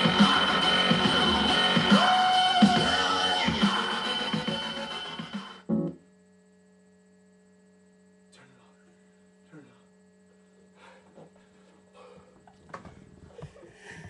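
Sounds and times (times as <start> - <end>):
dance music: 0.0 - 5.7
electrical mains hum: 0.0 - 14.0.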